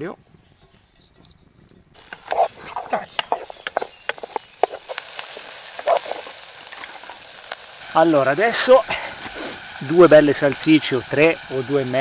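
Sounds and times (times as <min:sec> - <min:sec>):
wooden spoon scraping a pan: 0:02.0 - 0:07.7
onion sizzling in hot oil: 0:02.0 - 0:12.0.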